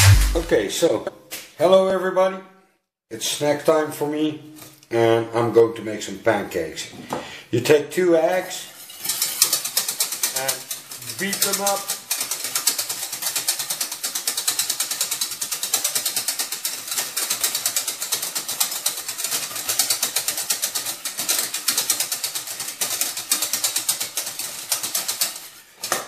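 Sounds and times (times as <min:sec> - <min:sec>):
whisk beating eggs in metal pot: 0:08.8 - 0:25.7.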